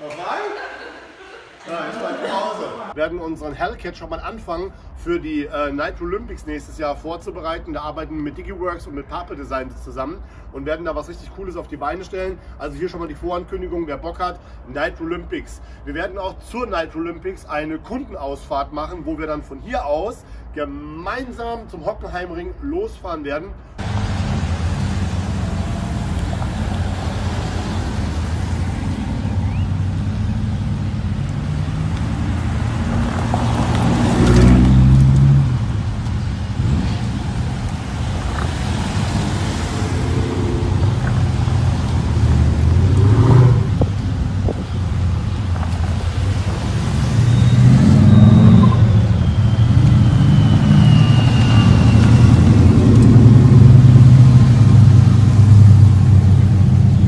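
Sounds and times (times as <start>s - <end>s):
car exhausts rumbling: 23.8s - 57.0s
engine revving: 23.8s - 57.0s.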